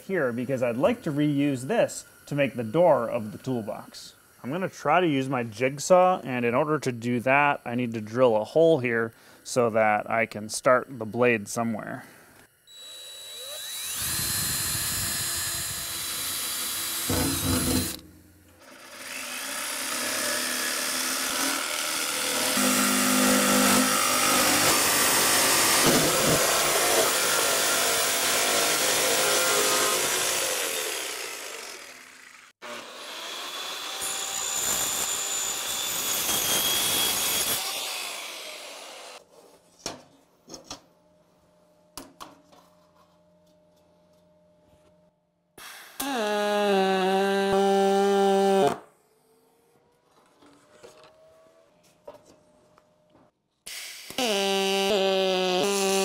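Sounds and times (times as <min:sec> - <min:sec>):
drill boring through metal sheet: 0:12.7 - 0:18.0, 0:18.6 - 0:39.2, 0:45.6 - 0:48.8, 0:53.7 - 0:56.0
jigsaw cutting metal panel: 0:12.7 - 0:39.2, 0:53.7 - 0:56.0.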